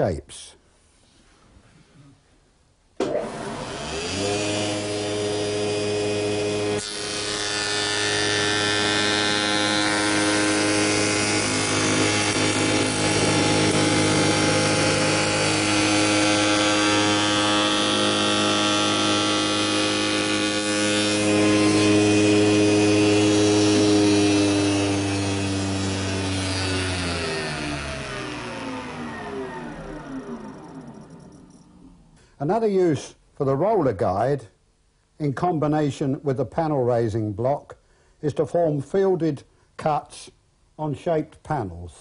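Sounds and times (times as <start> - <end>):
wood fed past cutter: 3.0 - 32.0
spindle moulder whining: 7.6 - 32.2.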